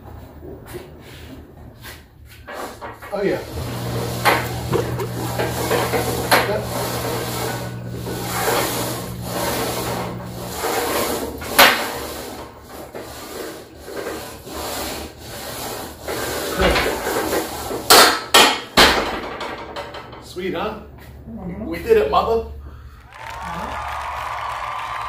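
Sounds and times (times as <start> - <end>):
bar carriage scraping on rods: 2.4 - 20.5
low hum: 3.4 - 11.5.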